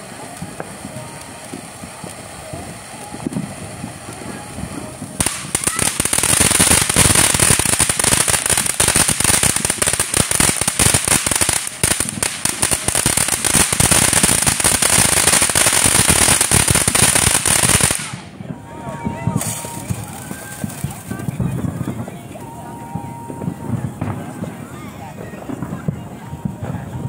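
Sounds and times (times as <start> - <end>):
firework fountain hissing and crackling: 0.0 - 27.0.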